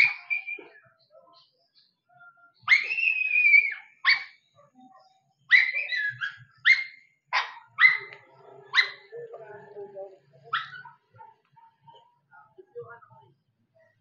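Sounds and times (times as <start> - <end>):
dog whining and yelping: 0.0 - 0.8, 5.5 - 9.1.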